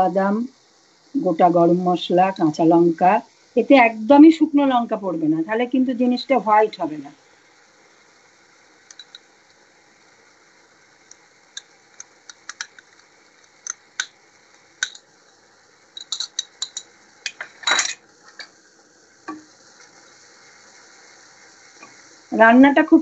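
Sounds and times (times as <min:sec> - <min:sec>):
faint sizzling: 0:00.0 - 0:23.0
metal spoon clinking on bowl: 0:16.0 - 0:18.0.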